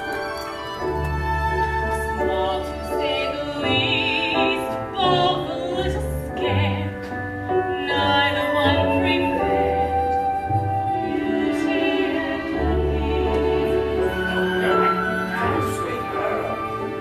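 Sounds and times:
instrumental accompaniment: 0.0s - 17.0s
woman singing with vibrato: 1.6s - 7.0s, 7.6s - 14.3s.

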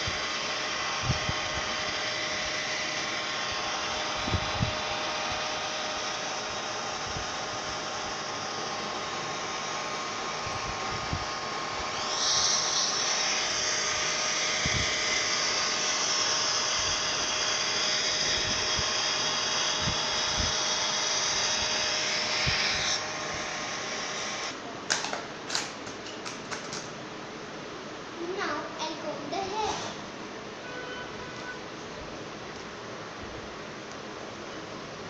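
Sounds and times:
toy hair dryer whirring: 0.0s - 24.6s
sharp clicks and knocks: 24.9s - 27.0s.

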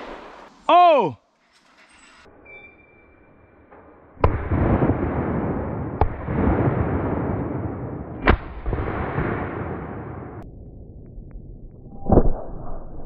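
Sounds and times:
sharp shotgun shots: 4.2s - 10.4s.

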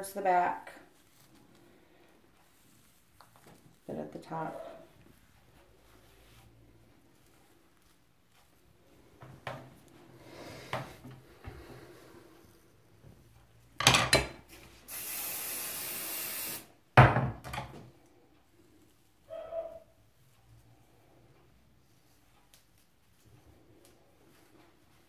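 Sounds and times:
hair brushing strokes: 0.7s - 13.7s
hairspray hiss: 14.8s - 16.7s.

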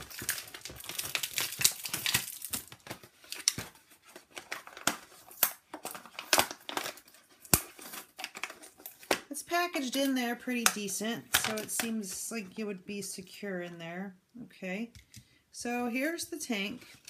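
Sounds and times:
packaging sleeve crinkling: 0.0s - 9.3s.

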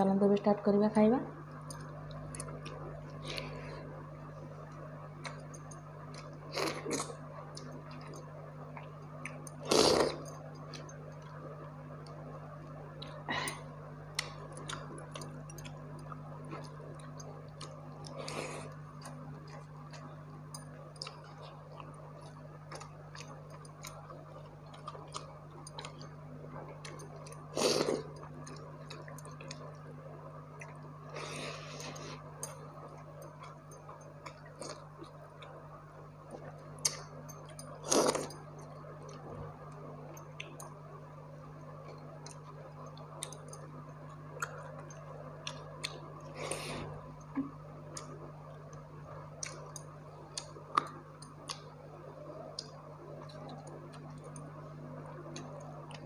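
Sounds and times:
steady low hum: 0.0s - 56.0s
person chewing crisp food: 14.2s - 20.2s, 20.9s - 29.7s, 36.4s - 38.4s.

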